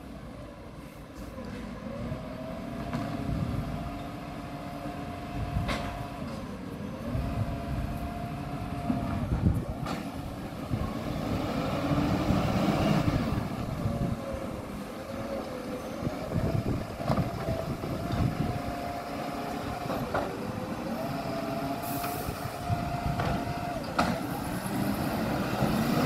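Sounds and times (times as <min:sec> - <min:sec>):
garbage truck engine revving: 0:07.0 - 0:26.0.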